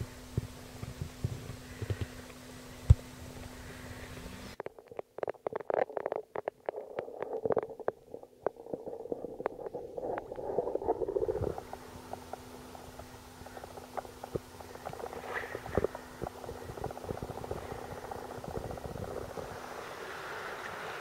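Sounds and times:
low steady hum: 0:00.0 - 0:21.0
underwater thrashing and bubbling: 0:04.6 - 0:21.0.

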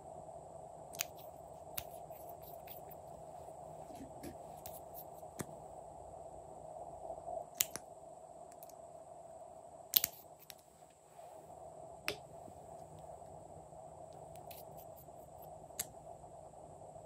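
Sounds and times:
faint background hum: 0:00.0 - 0:17.0.

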